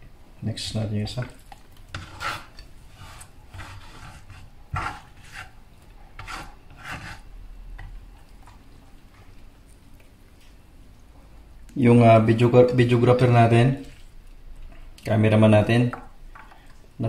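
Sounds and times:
hands rubbing and scraping food: 1.2s - 5.6s, 6.2s - 7.3s.

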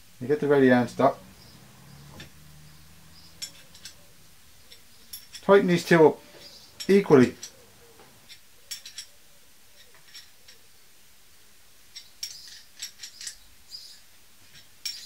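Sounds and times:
wrench clicking on metal bolts: 2.2s - 4.0s, 4.7s - 5.6s, 6.4s - 7.6s, 8.2s - 9.1s, 11.9s - 15.0s.

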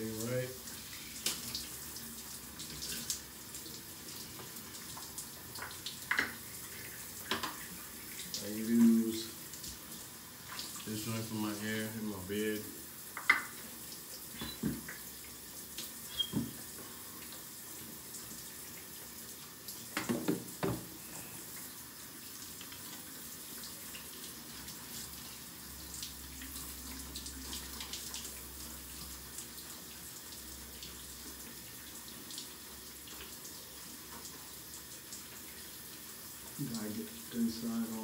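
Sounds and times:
shower water spraying: 0.0s - 29.8s.

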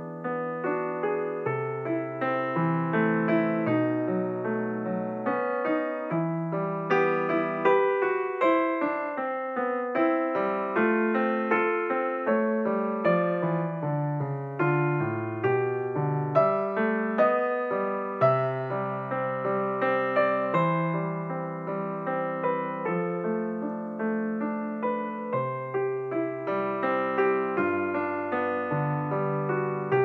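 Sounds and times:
gentle solo piano melody: 0.0s - 30.0s.

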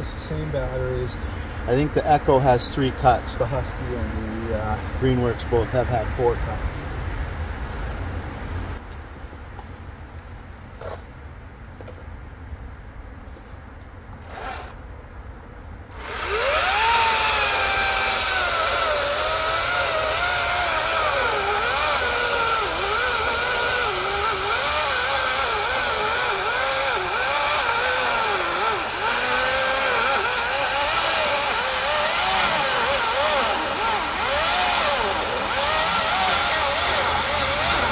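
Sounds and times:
cordless chainsaw cutting log: 14.2s - 14.8s, 15.9s - 37.9s.

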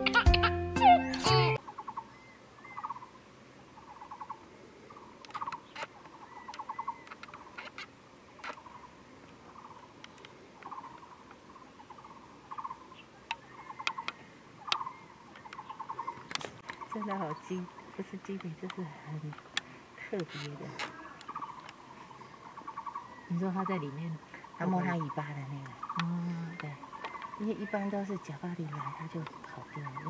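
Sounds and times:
sharp clicks: 5.2s - 9.4s, 10.0s - 11.4s, 13.2s - 17.4s, 18.2s - 21.8s, 25.6s - 27.8s
bird rattling chirps: 11.9s - 19.6s, 24.5s - 30.0s.

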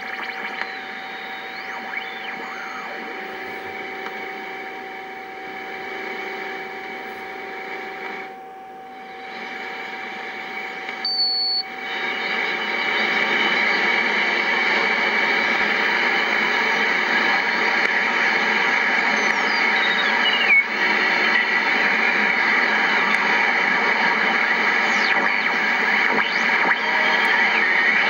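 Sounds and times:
shortwave receiver hissing: 0.0s - 28.0s
short high beep: 11.0s - 11.6s.

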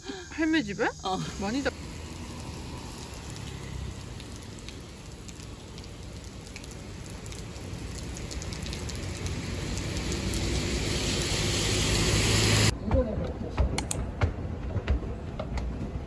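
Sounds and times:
rain on wet street: 1.6s - 12.7s
drop clicks: 13.8s - 14.0s.

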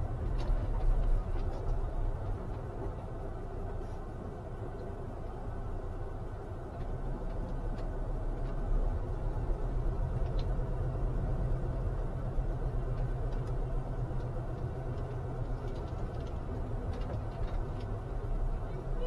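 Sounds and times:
vehicle engine and road rumble: 0.0s - 19.0s.

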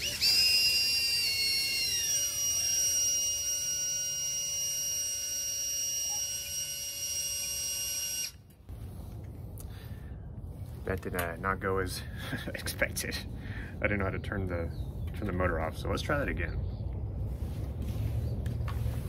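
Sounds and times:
drone motors whining: 0.0s - 8.6s.

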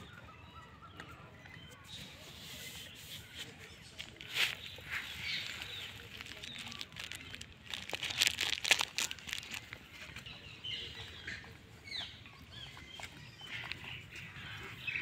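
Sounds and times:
dry leaves crackling and rustling: 2.3s - 11.1s.

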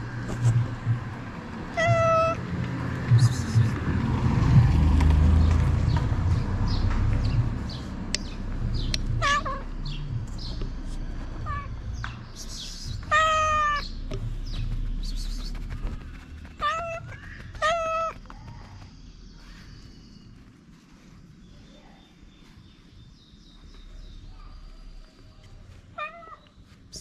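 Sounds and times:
cat rubbing against clothing: 0.2s - 0.7s, 12.4s - 24.0s
cat meowing: 1.7s - 2.4s, 9.2s - 9.7s, 11.4s - 11.7s, 13.0s - 13.9s, 16.6s - 18.2s, 26.0s - 26.4s.

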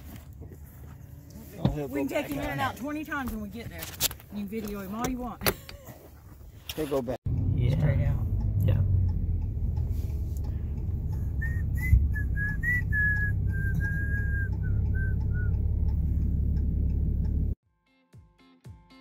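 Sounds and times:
road noise inside a moving car: 0.0s - 5.6s, 6.4s - 17.6s
person whistling: 11.2s - 15.6s.

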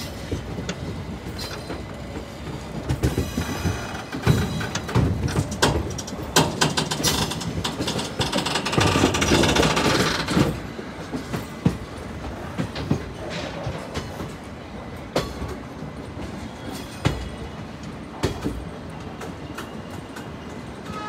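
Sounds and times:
steady train rumble: 0.0s - 21.0s
train wheels clattering over rails: 0.0s - 21.0s.

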